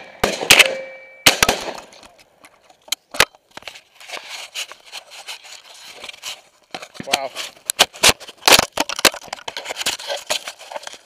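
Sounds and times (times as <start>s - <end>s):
shotgun blasts: 0.0s - 1.9s
rustling and handling noise: 1.9s - 11.0s.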